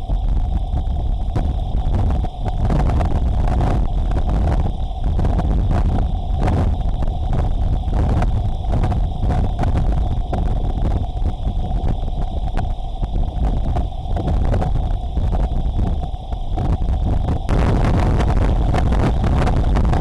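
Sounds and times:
wind buffeting microphone: 0.0s - 20.0s
heavy rain: 16.6s - 20.0s.

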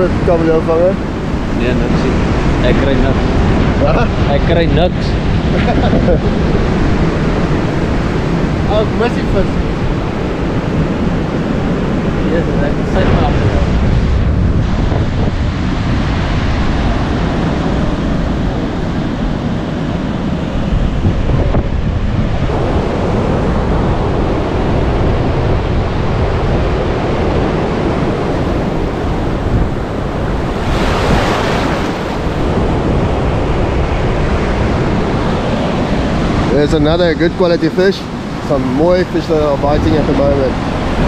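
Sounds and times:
surf washing: 0.0s - 41.0s
waves breaking: 0.0s - 41.0s
wind buffeting microphone: 0.0s - 41.0s.

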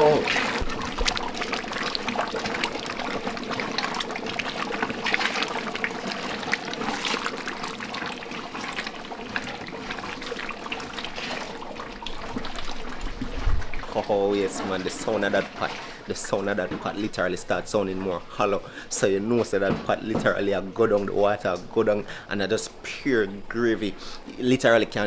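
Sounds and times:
wooden paddle stirring: 0.0s - 17.3s
pot bubbling hard: 0.0s - 25.0s.

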